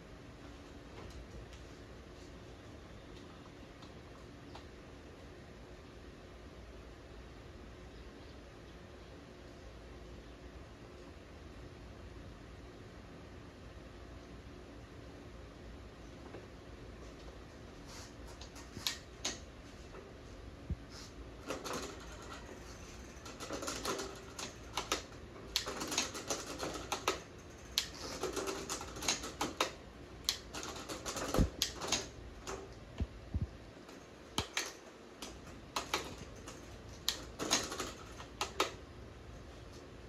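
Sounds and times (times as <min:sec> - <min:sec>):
sharp clicks: 0:34.3 - 0:38.8.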